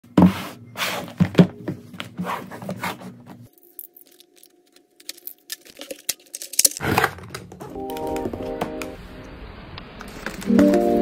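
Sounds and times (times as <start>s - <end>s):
cardboard box scraping on desk mat: 0.2s - 1.4s.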